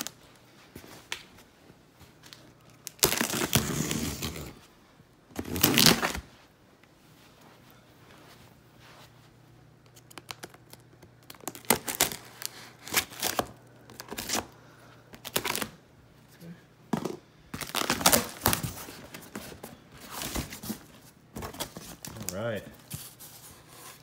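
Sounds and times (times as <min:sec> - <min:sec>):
packing tape ripping: 0:02.3 - 0:04.6, 0:05.4 - 0:06.3, 0:09.9 - 0:14.6, 0:15.2 - 0:15.8, 0:17.6 - 0:18.8.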